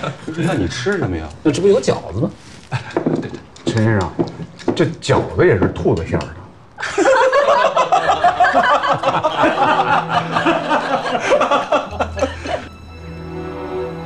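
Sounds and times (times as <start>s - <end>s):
group of people laughing: 0.0s - 0.8s, 2.7s - 3.4s, 6.8s - 12.8s
soft music with held notes: 8.8s - 14.0s.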